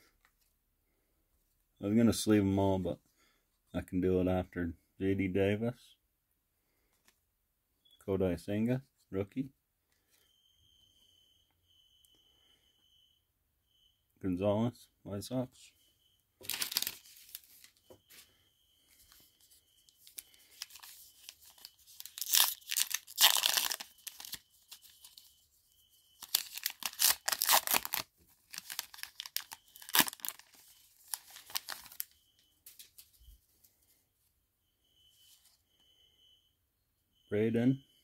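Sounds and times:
wrapper tearing and crinkling: 0:16.4 - 0:17.7, 0:20.1 - 0:25.2, 0:26.2 - 0:32.1.

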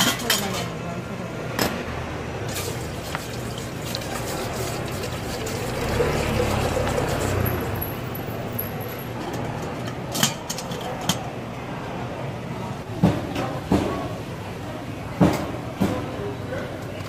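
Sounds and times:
water pouring into metal kettle: 0:02.5 - 0:08.7.

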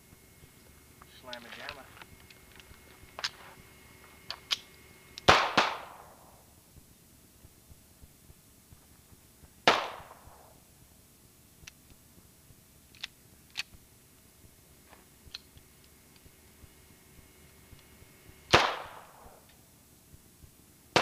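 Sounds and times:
handgun shot: 0:05.2 - 0:06.3, 0:09.6 - 0:10.5, 0:18.5 - 0:19.4.

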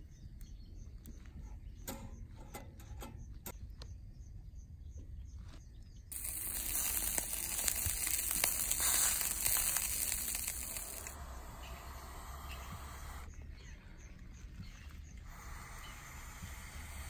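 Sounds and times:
meat sizzling and crackling on grill: 0:06.1 - 0:11.2.

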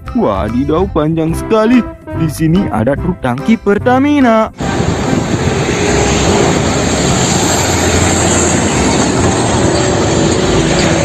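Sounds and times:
truck driving by: 0:04.5 - 0:11.0.

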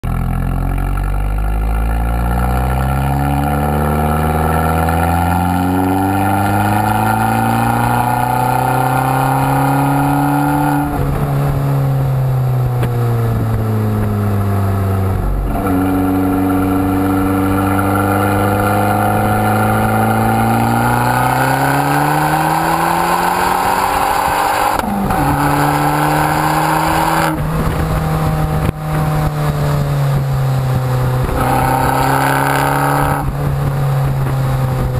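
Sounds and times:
car engine accelerating: 0:00.0 - 0:34.9.

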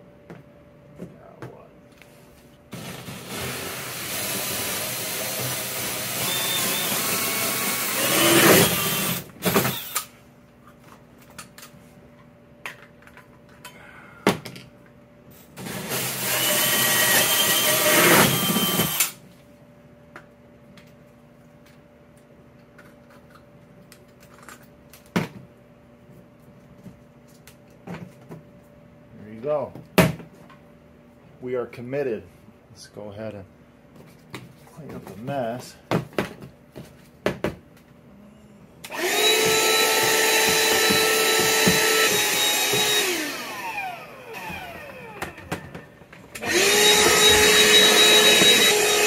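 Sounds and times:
faint steady hum: 0:00.0 - 0:15.7, 0:19.0 - 0:39.0
drill hole saw cutting plastic: 0:02.8 - 0:10.1, 0:15.6 - 0:19.2, 0:38.9 - 0:45.5, 0:46.4 - 0:49.0.

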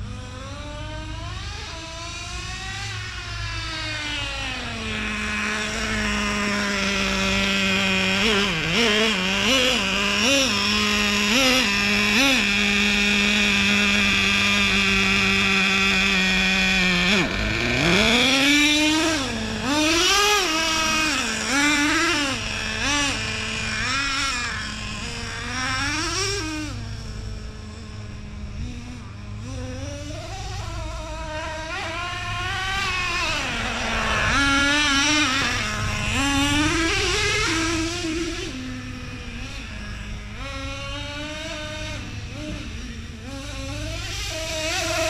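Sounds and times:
nitro engine revving: 0:00.0 - 0:45.0.

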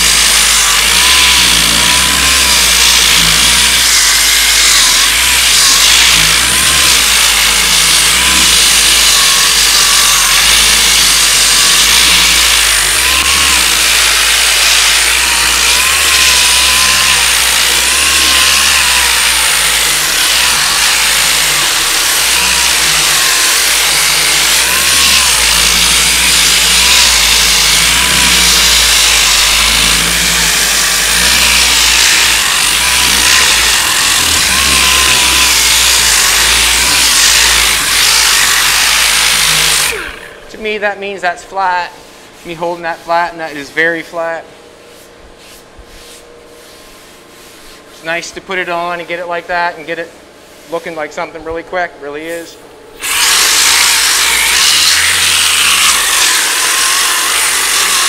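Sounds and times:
power sander whirring: 0:00.0 - 0:40.6, 0:53.0 - 0:58.0.

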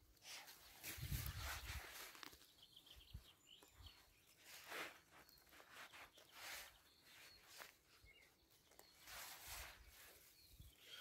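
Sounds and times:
grass rustling: 0:00.7 - 0:02.5, 0:08.7 - 0:10.6.

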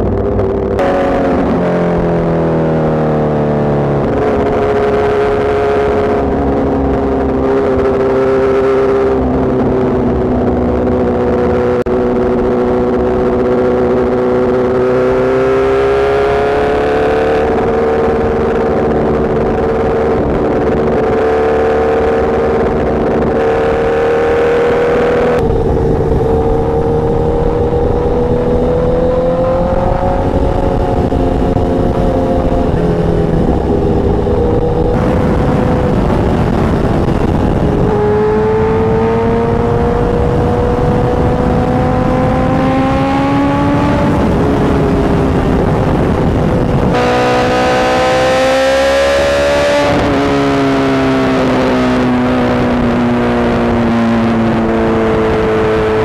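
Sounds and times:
motorcycle engine at high revs: 0:00.0 - 0:56.0
wind rush over microphone: 0:00.0 - 0:56.0.

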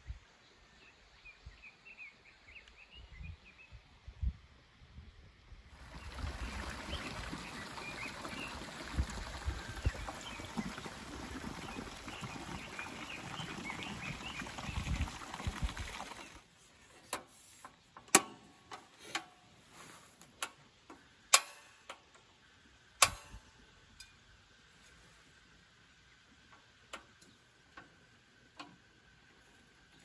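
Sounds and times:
wind gusting on microphone: 0:05.8 - 0:16.2.

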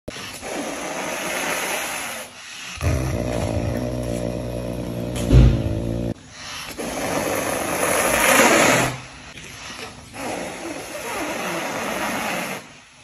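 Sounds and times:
wild cat hissing: 0:00.1 - 0:09.1
wild cat growling: 0:02.8 - 0:06.2.

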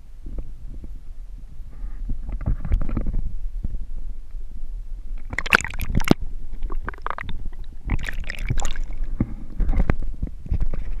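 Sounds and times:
low gurgling rumble: 0:00.0 - 0:11.0
water splashing: 0:05.3 - 0:09.1.

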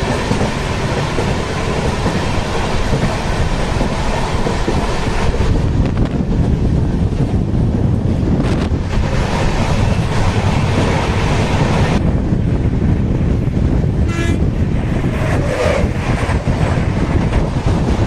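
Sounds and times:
passenger train rumbling on track: 0:00.0 - 0:18.0.

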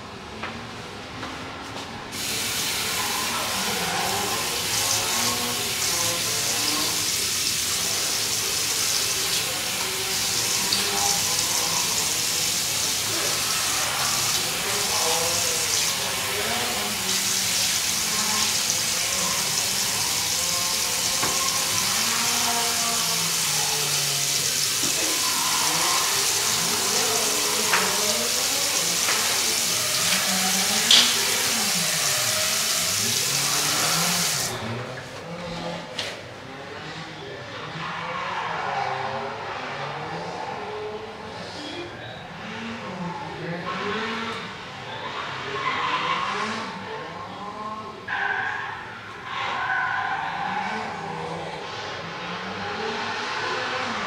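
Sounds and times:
tap water running into sink: 0:02.2 - 0:34.5.

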